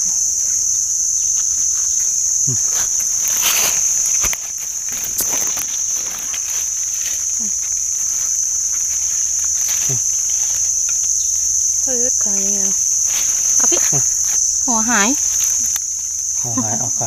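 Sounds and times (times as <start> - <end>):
insects chorus: 0.0 - 17.0
rustling leaf litter: 0.2 - 17.0
knife scraping soil: 2.7 - 7.3.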